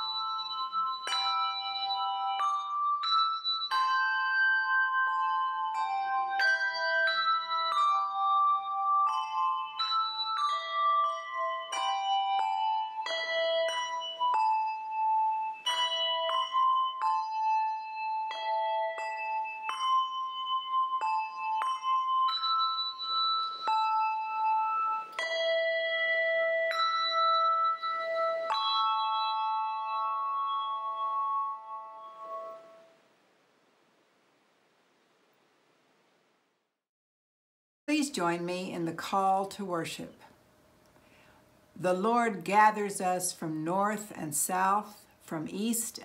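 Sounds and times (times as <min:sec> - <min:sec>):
handbell choir ringing: 0:00.0 - 0:32.8.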